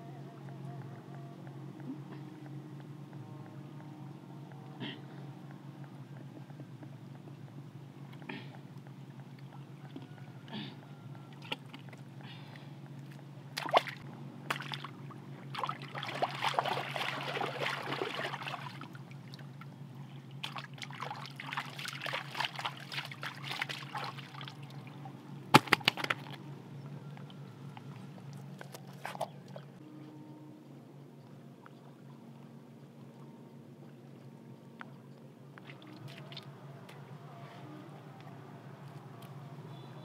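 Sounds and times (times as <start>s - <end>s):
steady low hum: 0.0s - 40.0s
muddy water sloshing and splashing: 9.9s - 26.5s, 27.2s - 29.8s, 35.6s - 37.0s.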